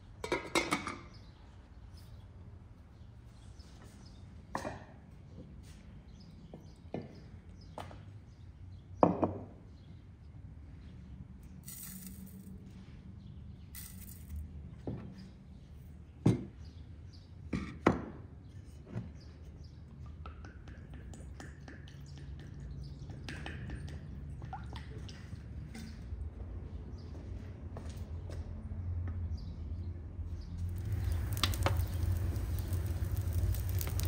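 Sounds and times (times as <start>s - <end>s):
salt sprinkling hiss: 11.6s - 12.5s, 13.8s - 14.4s, 30.6s - 34.0s
water pouring from jug: 30.7s - 34.0s.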